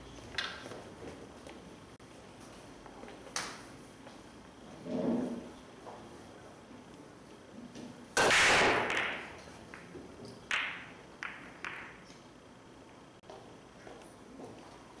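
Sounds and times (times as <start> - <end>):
pool balls clicking: 8.7 - 13.0.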